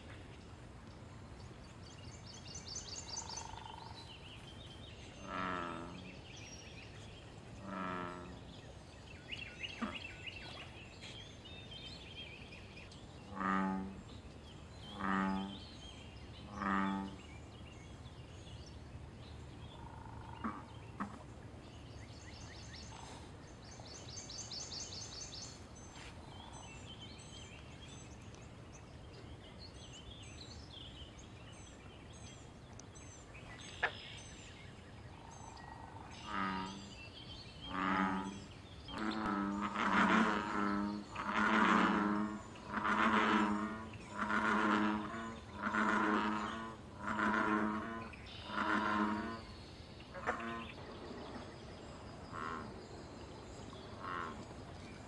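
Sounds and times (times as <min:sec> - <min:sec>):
small birds chirping faintly: 0:00.0 - 0:55.0
bullfrogs croaking: 0:02.9 - 0:04.1, 0:05.1 - 0:06.2, 0:07.6 - 0:08.6, 0:13.2 - 0:14.1, 0:14.8 - 0:15.8, 0:16.4 - 0:17.5, 0:19.7 - 0:21.3, 0:35.2 - 0:54.8.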